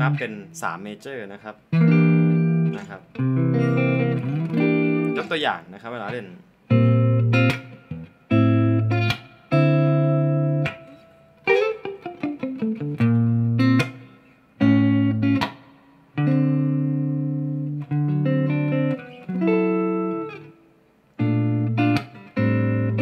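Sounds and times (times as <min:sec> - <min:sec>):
electric guitar playing: 0:00.0 - 0:00.6, 0:01.6 - 0:23.0.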